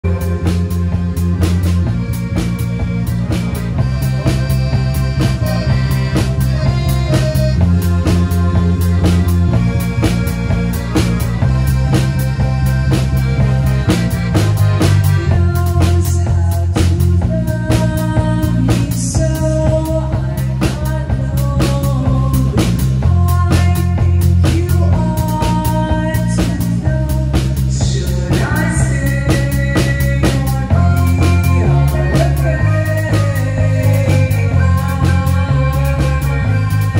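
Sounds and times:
drum kit beat: 0:00.0 - 0:36.9
heavy bass guitar line: 0:00.0 - 0:36.9
woman singing: 0:15.0 - 0:36.9.

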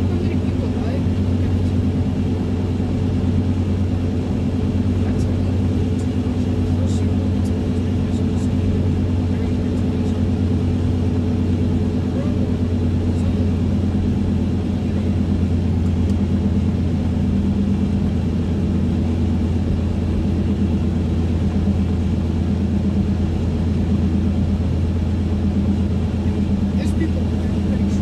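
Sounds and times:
car cabin highway drone: 0:00.0 - 0:28.0.

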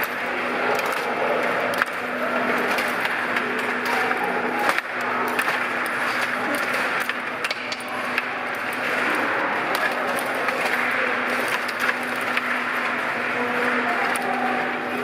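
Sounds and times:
plastic clicks of table hockey: 0:00.0 - 0:15.0.

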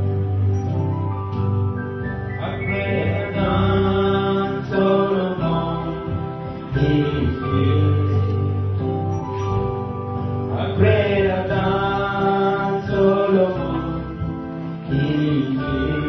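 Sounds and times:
instrumental backing chords: 0:00.0 - 0:16.0
man singing worship song: 0:02.4 - 0:08.9, 0:10.4 - 0:16.0.

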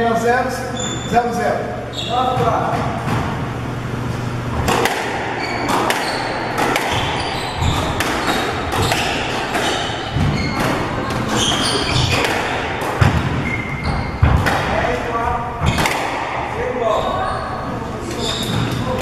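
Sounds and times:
shoes squeaking on wooden floor: 0:00.8 - 0:01.2, 0:01.9 - 0:02.7, 0:05.2 - 0:14.5, 0:16.9 - 0:19.0
squash ball cracking off rackets: 0:04.6 - 0:14.9, 0:15.6 - 0:16.5.

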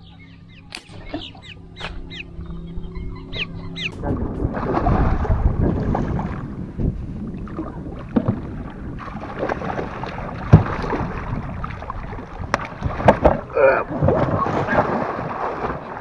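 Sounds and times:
knocks and rustling in boat: 0:03.8 - 0:16.0
fish thrashing water: 0:04.0 - 0:16.0.

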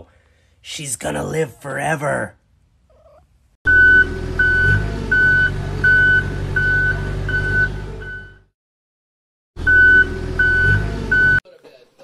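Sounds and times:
low engine rumble: 0:03.7 - 0:08.5
reversing alarm beeping: 0:03.7 - 0:08.5, 0:09.6 - 0:11.4.

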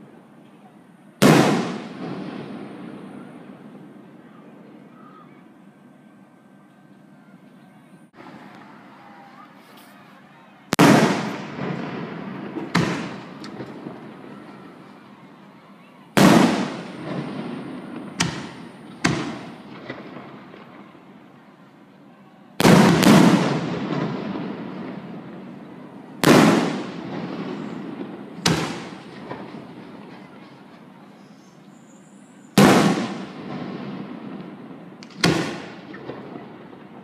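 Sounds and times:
firework booms with echo: 0:01.2 - 0:04.1, 0:10.7 - 0:14.8, 0:16.2 - 0:20.8, 0:22.6 - 0:30.4, 0:32.6 - 0:37.0.

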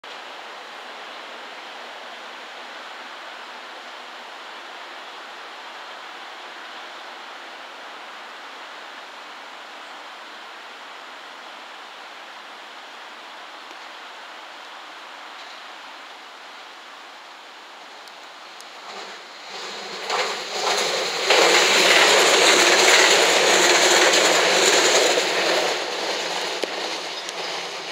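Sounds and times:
steady rushing noise: 0:17.7 - 0:27.9.

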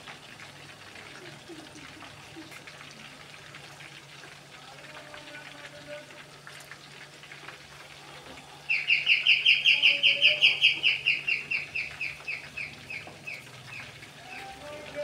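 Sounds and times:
chicken deep-frying in oil: 0:00.0 - 0:15.0
bird calling sharply: 0:08.7 - 0:14.6.

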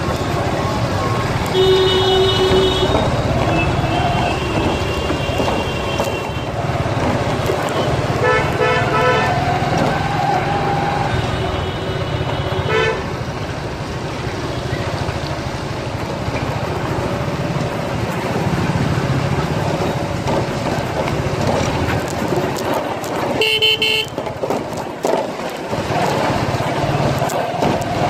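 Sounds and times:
traffic engines rumbling: 0:00.0 - 0:28.0
vehicle horn: 0:01.5 - 0:06.3, 0:08.2 - 0:09.4, 0:11.1 - 0:13.1, 0:23.4 - 0:24.2.

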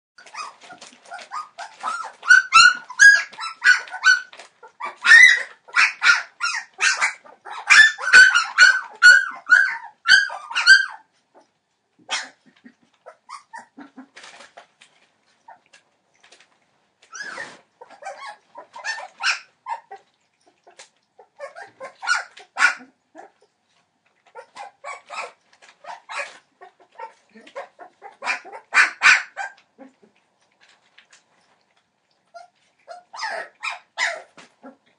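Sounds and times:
puppies crying: 0:00.2 - 0:11.1, 0:12.1 - 0:14.1, 0:17.1 - 0:23.5, 0:24.3 - 0:30.1, 0:32.3 - 0:34.9.

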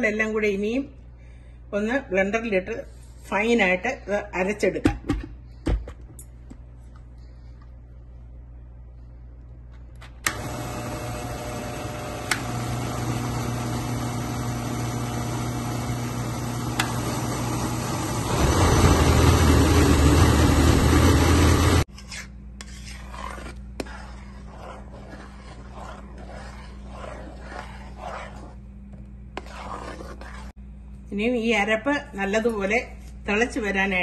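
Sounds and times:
blender grinding: 0:10.3 - 0:21.9.

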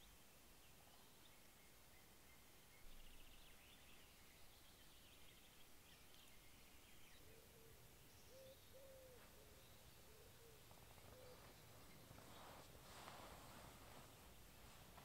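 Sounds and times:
quiet hiss: 0:00.0 - 0:15.0
low hooting bird: 0:07.2 - 0:14.8.

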